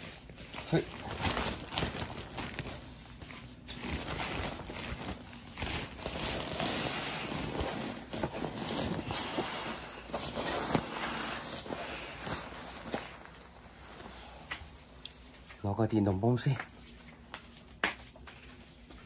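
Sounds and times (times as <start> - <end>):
nylon sack rustling and flapping: 0.0 - 14.4
nylon sack crinkling: 0.0 - 14.5.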